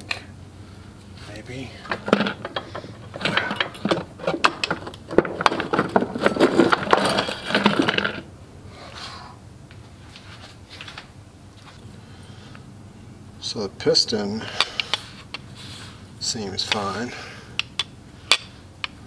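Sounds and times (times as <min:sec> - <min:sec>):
metal engine parts clinking: 0:01.8 - 0:08.3.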